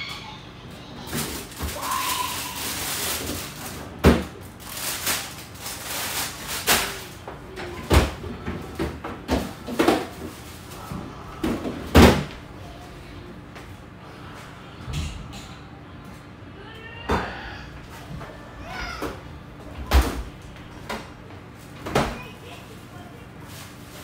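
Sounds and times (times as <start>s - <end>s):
kitchen items knocking and clattering: 1.1s - 10.4s.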